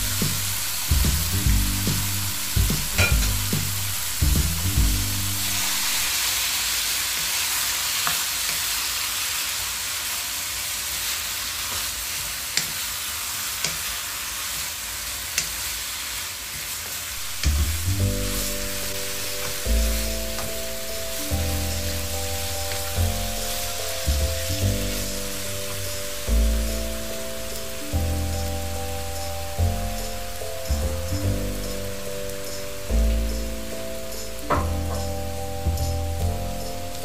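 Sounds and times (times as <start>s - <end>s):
background music with low notes: 0.0s - 6.2s, 17.2s - 37.0s
meat sizzling in a pan: 0.0s - 37.0s.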